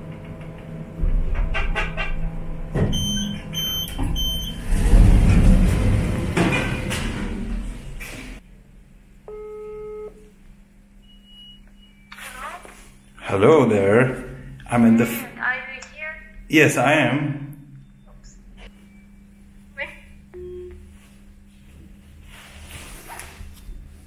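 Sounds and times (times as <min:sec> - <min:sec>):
lift rumbling and clattering: 0:00.0 - 0:08.4
phone ringback tone: 0:09.3 - 0:10.2.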